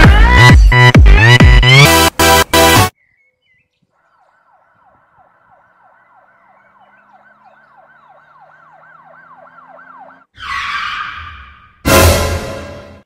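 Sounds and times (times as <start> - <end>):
siren yelping: 3.9 - 11.9.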